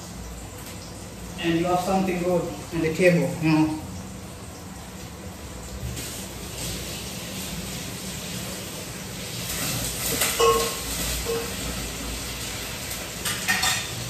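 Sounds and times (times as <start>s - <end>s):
onions sizzling in oil: 0.0s - 14.0s
metal utensil clinking on pan: 10.1s - 11.6s, 13.2s - 14.0s.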